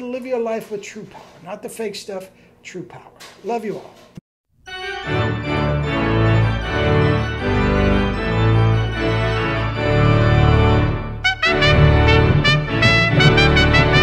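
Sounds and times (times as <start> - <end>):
instrumental music with sustained chords: 4.7 - 14.0.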